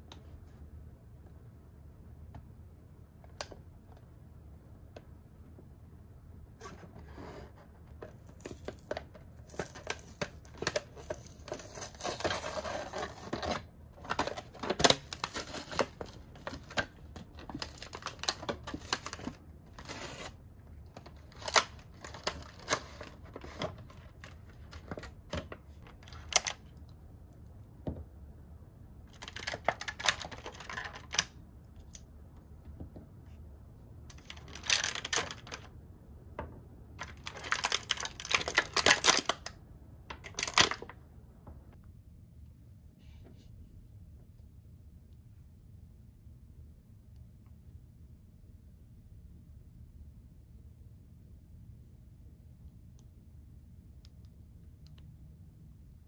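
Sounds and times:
packaging tearing and crinkling: 8.2 - 20.4, 21.0 - 25.0, 34.2 - 35.7, 37.0 - 39.5.

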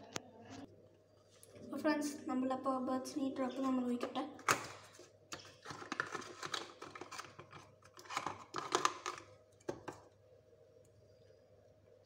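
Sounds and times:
plastic bottle clicks and rustles: 4.4 - 10.0.

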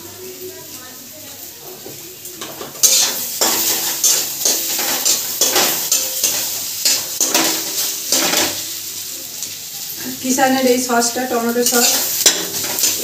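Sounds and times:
rice sizzling: 0.0 - 13.0
spatula scraping a pan: 2.4 - 8.6, 11.6 - 13.0.

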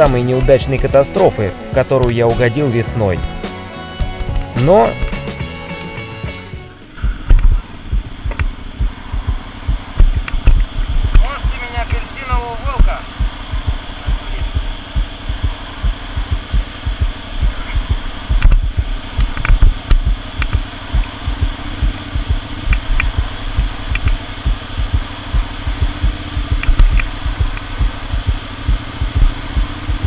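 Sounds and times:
heavy low thumps: 0.0 - 30.0
motorcycle engine drone: 0.0 - 30.0
faint clicks: 8.2 - 8.6, 10.0 - 11.2, 18.4 - 21.1, 22.6 - 24.9.

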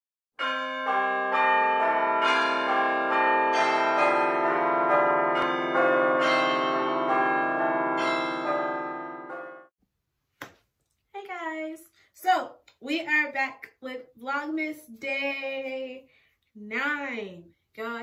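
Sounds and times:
ringing bell tone music: 0.4 - 9.7.

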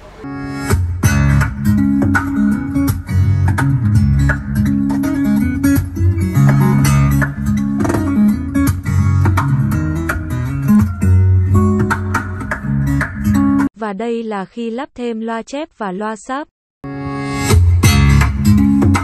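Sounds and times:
steady bass line: 0.0 - 13.7, 16.9 - 19.0
plucked guitar music: 0.5 - 13.7, 17.8 - 19.0.

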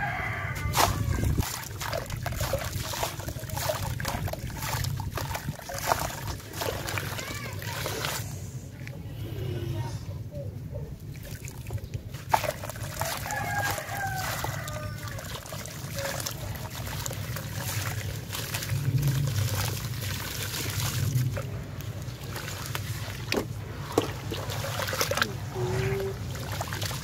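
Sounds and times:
water splashes and trickles: 0.0 - 9.0, 11.0 - 27.0
hands squishing gritty mud: 0.5 - 8.4, 11.1 - 27.0
wet cement crumbling into water: 0.7 - 8.0, 11.4 - 25.4.

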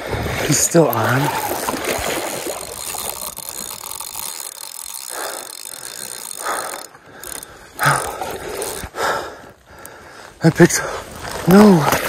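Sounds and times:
fishing reel ratcheting: 0.5 - 9.2.

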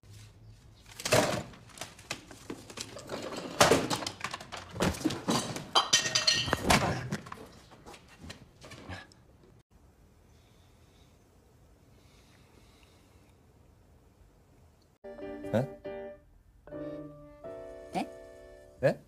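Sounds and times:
objects knocking and clattering: 1.0 - 8.9.

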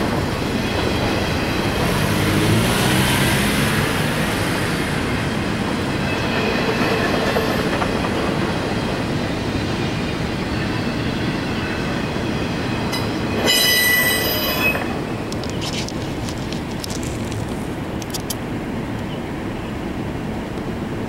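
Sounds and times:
freight train wheels on rail: 0.0 - 21.0
high wheel squeal: 9.8 - 15.7.

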